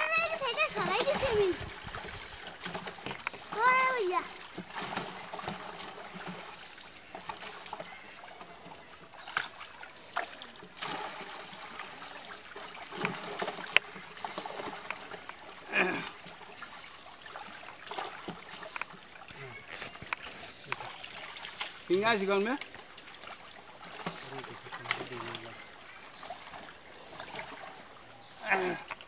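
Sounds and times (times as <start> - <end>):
water sloshing and splashing: 0.0 - 29.0.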